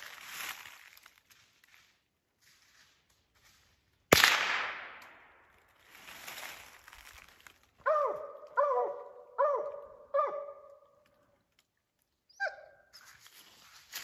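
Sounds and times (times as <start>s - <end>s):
gunshot ringing through woods: 4.1s - 5.4s
dog barking: 7.8s - 10.8s.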